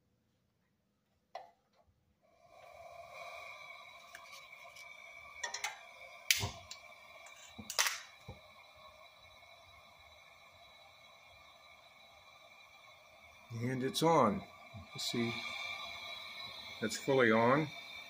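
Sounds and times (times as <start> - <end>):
propane hissing with faint whistle: 2.2 - 18.0
sharp igniting clicks: 6.3 - 6.8.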